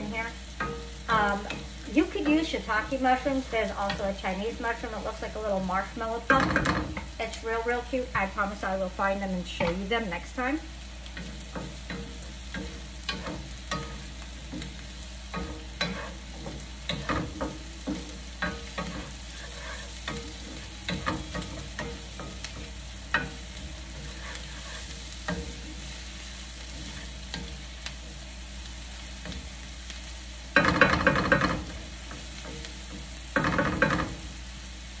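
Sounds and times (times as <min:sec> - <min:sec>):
vegetables sizzling in a pan: 0:00.0 - 0:35.0
utensil scraping against pan: 0:11.0 - 0:28.2.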